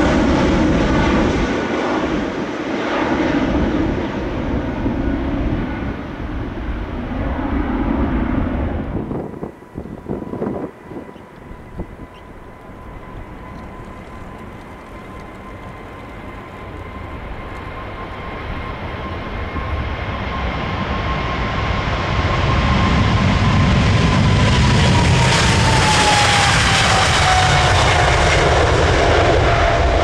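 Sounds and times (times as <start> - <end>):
jet engines on takeoff: 0.0 - 30.0
thin whining engine tone: 9.4 - 21.2.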